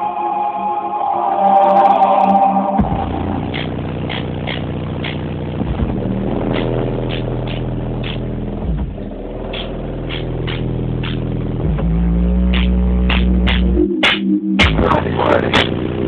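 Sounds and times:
bass-heavy music over subwoofers: 0:02.5 - 0:16.0
hi-hat like ticks: 0:03.5 - 0:05.4, 0:06.5 - 0:08.4, 0:09.5 - 0:11.4, 0:12.5 - 0:14.8.

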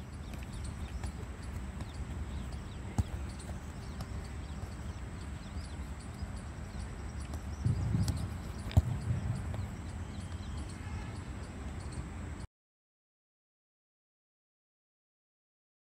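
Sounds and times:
low steady background hum: 0:00.0 - 0:12.5
football kick: 0:00.3 - 0:05.0, 0:07.2 - 0:10.5.

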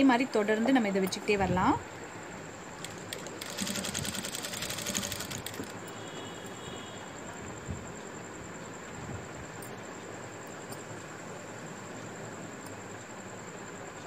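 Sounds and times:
sewing machine stitching: 0:02.8 - 0:05.8.

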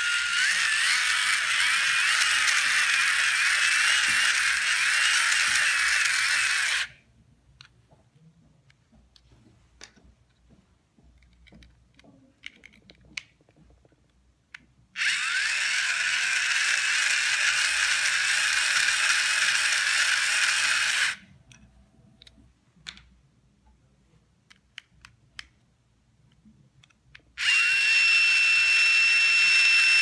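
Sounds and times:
hand-cranked generator whirring: 0:00.0 - 0:06.9, 0:15.0 - 0:21.2, 0:27.4 - 0:30.0.

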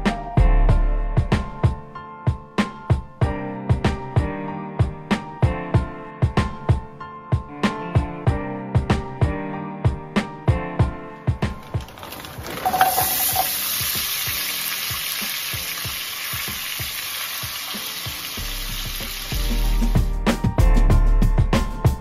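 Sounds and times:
meatballs sizzling in oil: 0:12.0 - 0:20.1.

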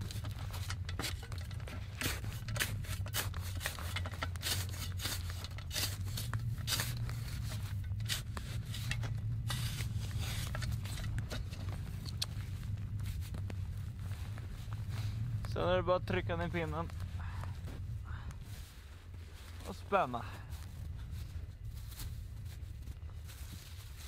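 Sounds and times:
steady low hum: 0:00.0 - 0:24.0
snow shovel scraping packed snow: 0:00.1 - 0:17.8.

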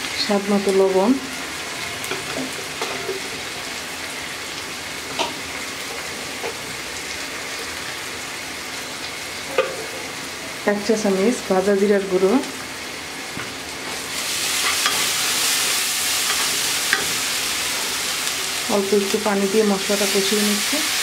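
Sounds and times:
onions sizzling in hot oil: 0:00.0 - 0:21.0.

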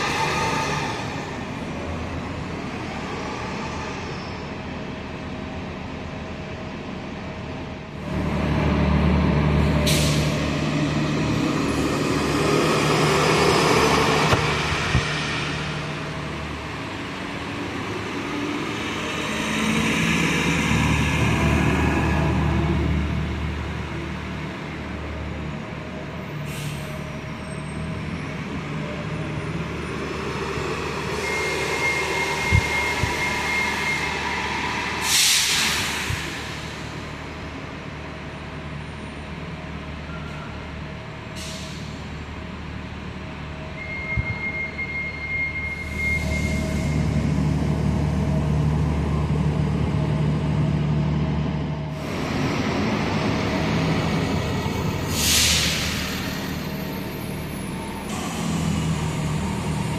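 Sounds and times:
bus engine drone: 0:00.0 - 0:59.9
air brake hiss: 0:09.8 - 0:10.4, 0:26.4 - 0:27.0, 0:31.7 - 0:36.9, 0:41.4 - 0:42.0, 0:55.1 - 0:56.6.

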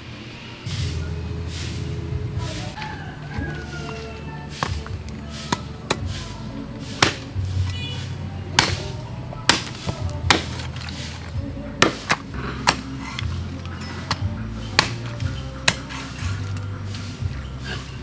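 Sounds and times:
background music: 0:00.0 - 0:18.0
heavy blade chopping meat: 0:06.8 - 0:07.4, 0:08.6 - 0:10.8, 0:11.8 - 0:13.3, 0:14.0 - 0:16.4.

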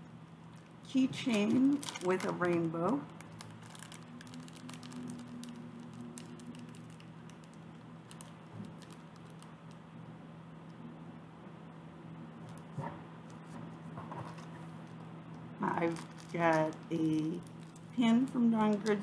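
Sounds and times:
steady low hum: 0:00.0 - 0:19.0
clicks and rustling of packaging: 0:00.5 - 0:09.8, 0:12.4 - 0:15.1, 0:15.8 - 0:18.0.

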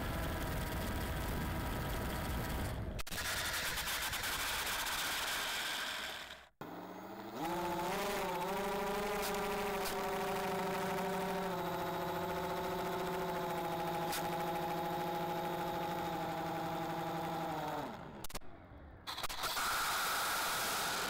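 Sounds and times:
electric motor whine: 0:05.1 - 0:18.4, 0:19.2 - 0:21.0.

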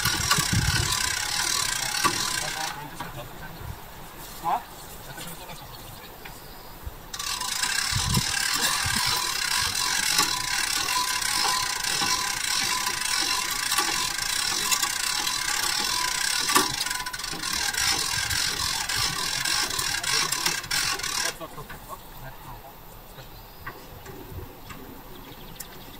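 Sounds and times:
winch whirring and clicking: 0:00.0 - 0:03.4, 0:07.1 - 0:22.0
faint steady whine: 0:00.0 - 0:25.9.

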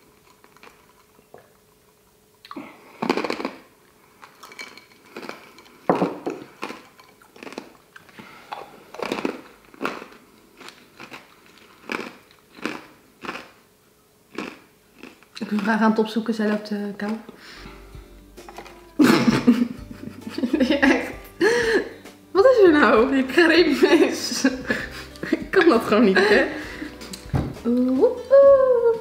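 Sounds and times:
person chewing food: 0:00.0 - 0:01.6, 0:02.4 - 0:13.7, 0:14.3 - 0:15.6.

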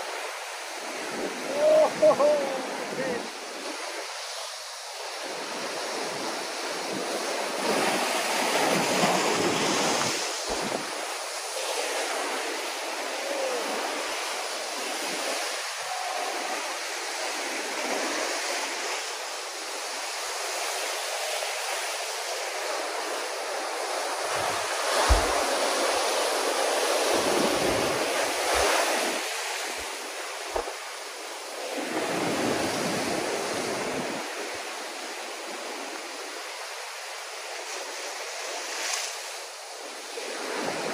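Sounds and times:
surf rushing on rocks: 0:00.0 - 0:40.9
brief thump: 0:25.0 - 0:25.4.

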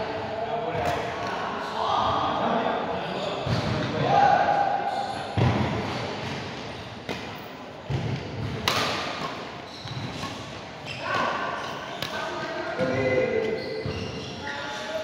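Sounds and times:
racket hitting shuttlecock: 0:05.4 - 0:13.6
voices: 0:07.9 - 0:15.0.

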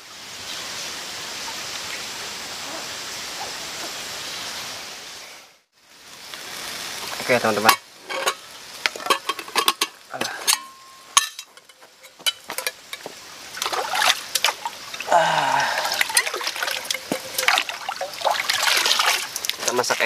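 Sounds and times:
metal cookware clicks: 0:09.0 - 0:13.0
water gurgling and splashing: 0:12.6 - 0:20.0.

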